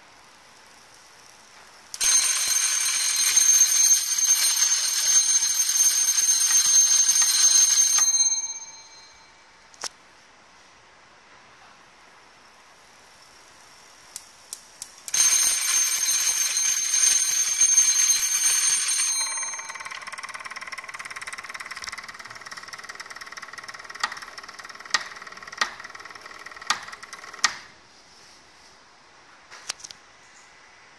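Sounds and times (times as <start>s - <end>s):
electric bell ringing: 2.0s - 9.4s, 15.1s - 27.2s.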